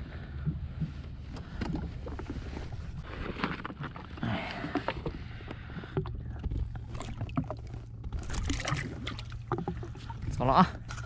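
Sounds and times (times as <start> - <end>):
low wind rumble on microphone: 0.0 - 3.9
water lapping against hull: 0.0 - 11.0.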